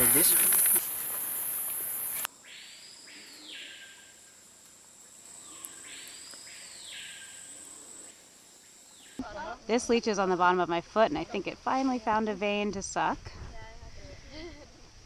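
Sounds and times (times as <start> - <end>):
loud high insect buzzing: 0.0 - 2.3
steady high insect whine: 0.0 - 15.0.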